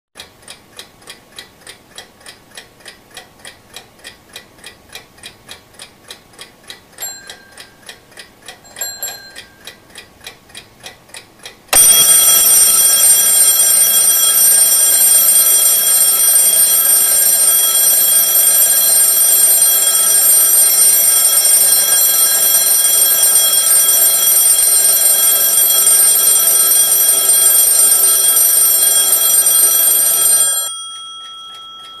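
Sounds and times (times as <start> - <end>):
alarm clock ticking: 0.2 - 32.0
alarm clock bells ringing: 8.6 - 9.8, 11.8 - 32.0.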